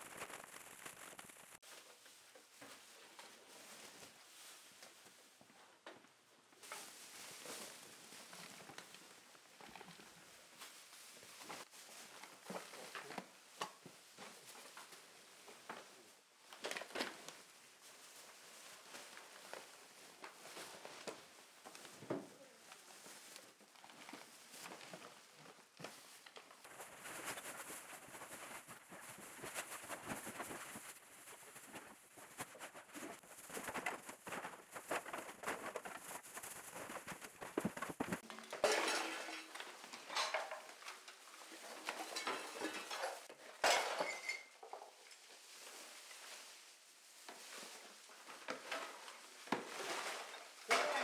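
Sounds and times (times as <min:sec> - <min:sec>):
plastic bags rustling: 0:00.0 - 0:05.2, 0:06.6 - 0:51.0
bottles and containers clattering: 0:37.4 - 0:45.0, 0:48.5 - 0:51.0.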